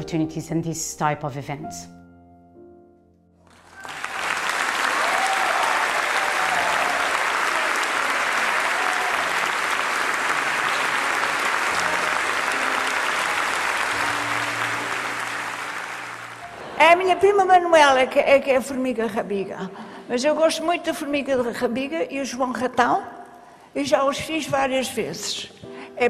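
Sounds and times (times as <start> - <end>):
audience applauding: 3.5 - 17.1.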